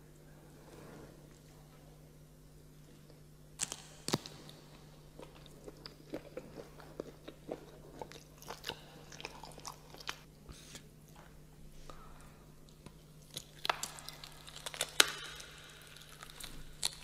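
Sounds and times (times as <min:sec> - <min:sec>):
eating and mouth sounds: 0:03.1 - 0:11.3
small clicks and smacks: 0:03.6 - 0:04.5, 0:12.7 - 0:17.0.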